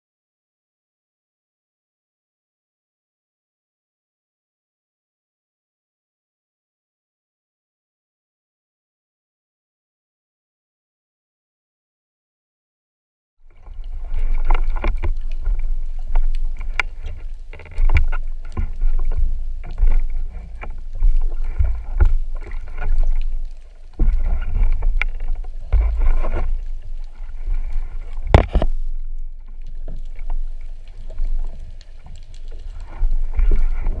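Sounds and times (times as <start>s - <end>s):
water sloshing and splashing: 13.4s - 34.0s
clicks and knocks of gear: 13.8s - 34.0s.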